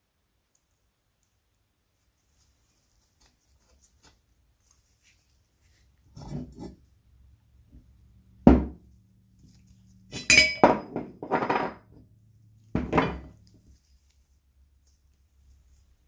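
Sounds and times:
metal parts clanking on a table: 10.1s - 11.8s.

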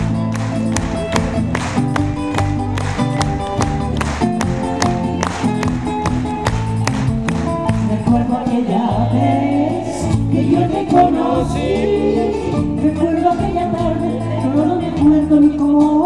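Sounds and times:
acoustic guitar plucking: 0.0s - 15.9s
woman singing: 7.7s - 16.0s.

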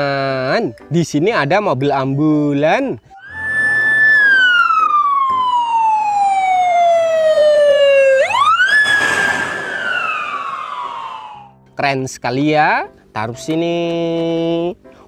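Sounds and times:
ambulance siren wailing: 3.1s - 11.5s
ambulance passing by: 3.2s - 11.5s.

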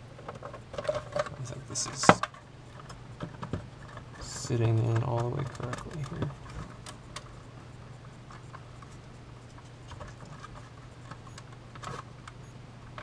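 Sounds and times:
steady low hum: 0.0s - 13.0s
clicks and taps of plastic parts: 2.0s - 7.3s.

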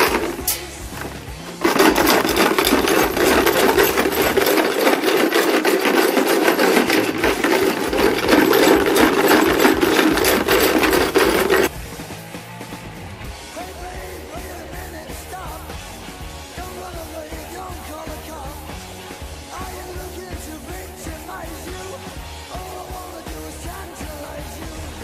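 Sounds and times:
stones rattling in plastic tub: 0.0s - 11.7s.

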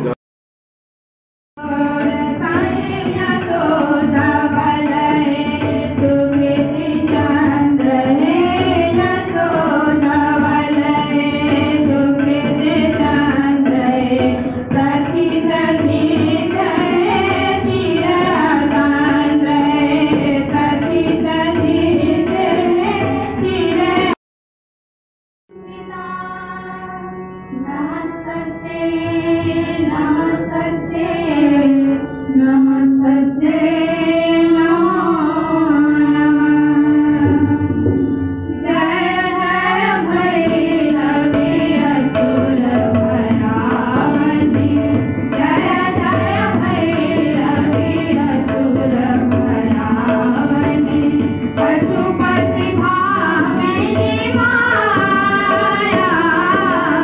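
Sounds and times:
girls singing together: 1.6s - 24.2s, 38.6s - 57.0s
harmonium: 1.6s - 24.2s, 25.5s - 57.0s
tabla: 1.6s - 24.2s, 25.5s - 57.0s.

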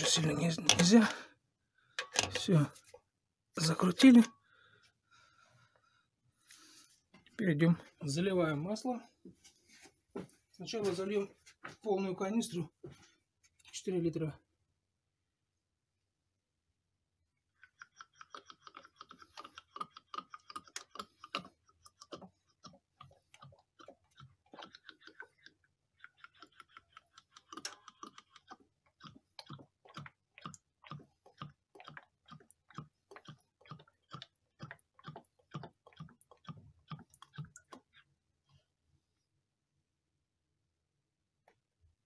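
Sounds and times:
oil glugging through funnel: 0.0s - 1.3s, 17.6s - 38.1s.

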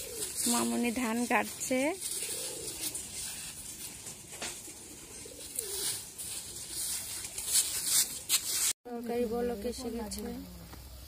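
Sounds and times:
dove cooing: 0.0s - 3.8s, 4.4s - 6.9s
grains rustling under feet: 0.0s - 8.8s.

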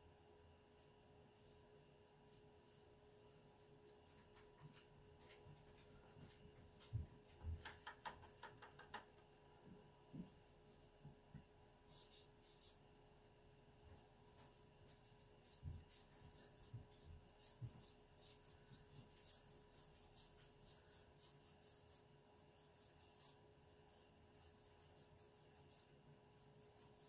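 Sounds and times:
brush swishing on paper: 0.8s - 7.0s, 11.8s - 12.9s, 13.9s - 27.0s.

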